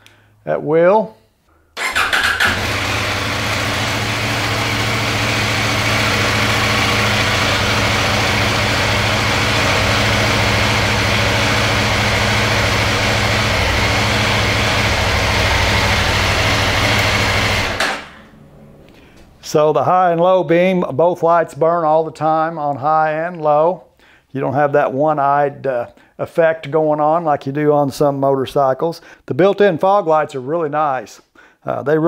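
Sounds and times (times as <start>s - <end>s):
motorcycle engine idling: 1.8s - 17.8s.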